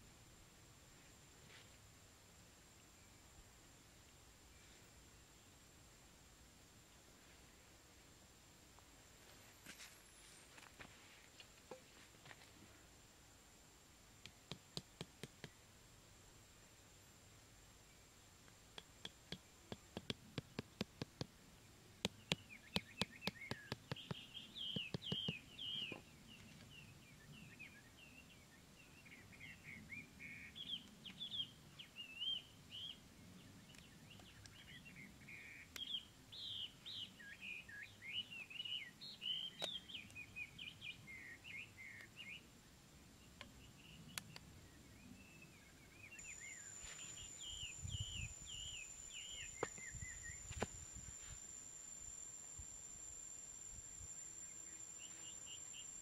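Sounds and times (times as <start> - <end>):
stake being tapped with knife: 14.2 - 15.6, 18.7 - 21.3, 22.0 - 25.4
small birds chirping: 18.7 - 42.5, 43.2 - 56.0.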